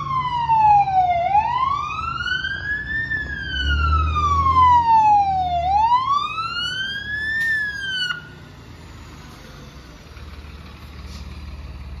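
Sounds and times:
fire engine siren wailing: 0.0 - 9.9
fire truck idling rumble: 0.0 - 12.0.

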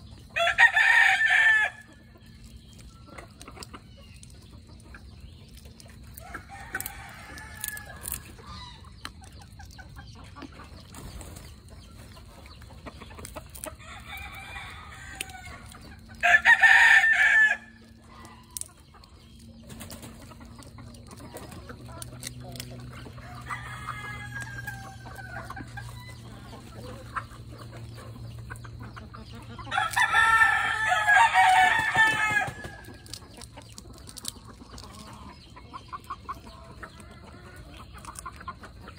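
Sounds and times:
roosters crowing: 0.0 - 3.0, 6.0 - 9.1, 13.5 - 18.7, 20.5 - 35.6
chickens clucking: 0.0 - 38.9.

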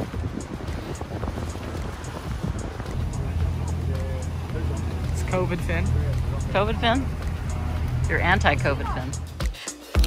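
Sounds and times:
wind buffeting microphone: 0.0 - 9.2
boat engine droning: 0.0 - 9.4
rushing water: 0.0 - 9.4.

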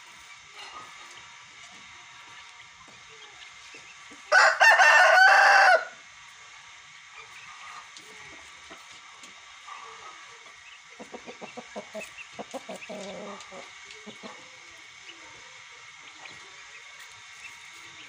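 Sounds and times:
rooster low wavering calls: 4.3 - 6.1
rooster clucking: 7.2 - 16.5.

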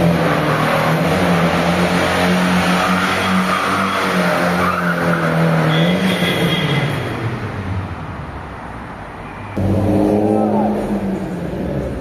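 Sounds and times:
high tyre squeal: 2.4 - 7.1
car engine at high revs: 9.6 - 12.0.

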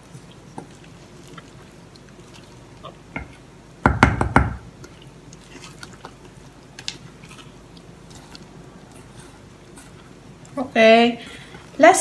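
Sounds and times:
spoon stirring thick batter: 0.0 - 3.8, 4.7 - 11.9
spoon knocking against pan: 3.9 - 4.6.

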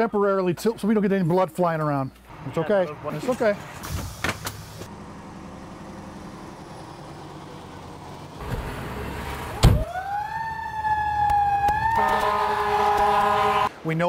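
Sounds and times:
rising siren tone: 9.8 - 13.7.

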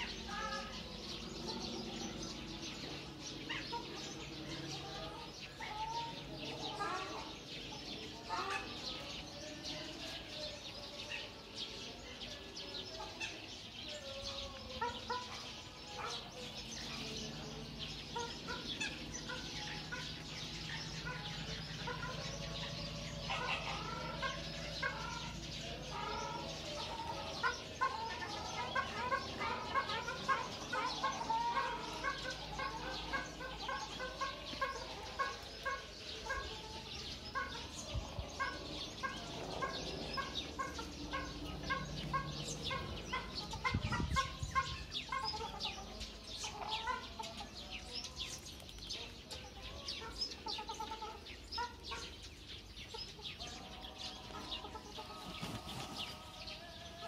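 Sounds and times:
birds calling: 0.0 - 57.0.

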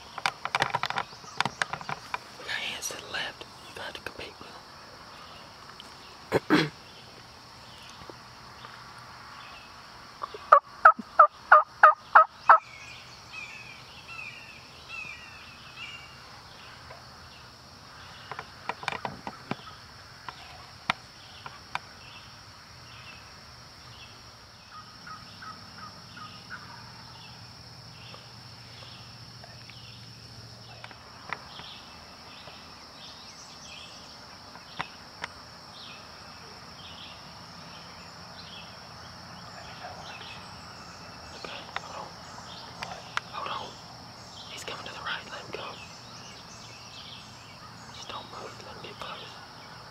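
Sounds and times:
high insect hum: 0.0 - 49.9
faint turkey calls: 10.2 - 12.7, 24.7 - 27.3.

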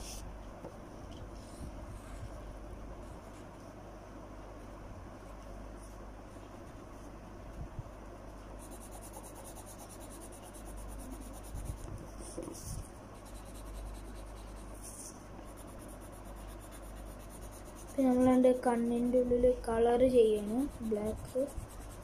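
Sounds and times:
low steady hum: 0.0 - 22.0
pencil scratching on paper: 8.6 - 19.3, 20.2 - 22.0.

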